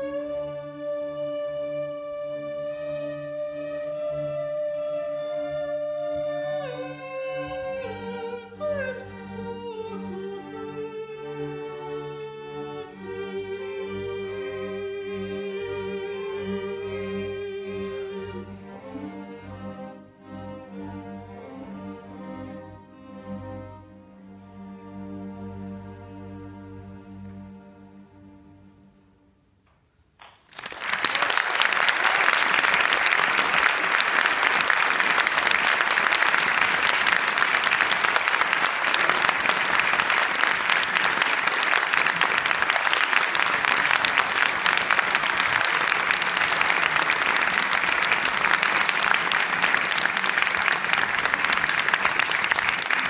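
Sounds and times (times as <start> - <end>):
audience applauding: 30.2 - 53.0.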